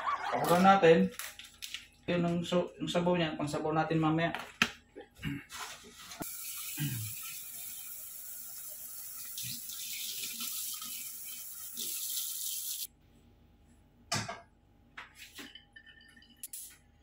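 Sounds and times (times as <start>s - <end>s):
tap water running into pan: 6.2s - 12.9s.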